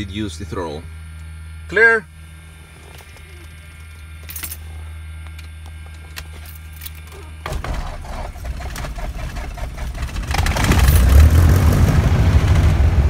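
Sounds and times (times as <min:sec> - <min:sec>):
steady hum: 0:00.0 - 0:13.0
aircraft engine starting and running: 0:05.3 - 0:13.0.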